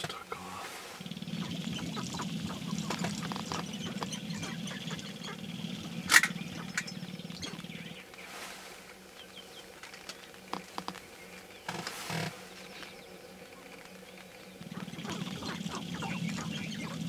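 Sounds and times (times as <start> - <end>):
grouse clucking and cackling: 0.0 - 8.1, 14.6 - 17.0
low steady hum: 0.0 - 17.0.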